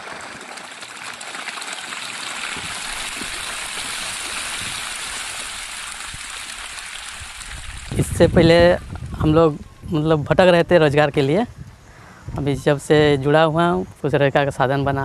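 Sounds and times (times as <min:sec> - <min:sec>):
fish thrashing and splashing water: 0:00.0 - 0:08.0.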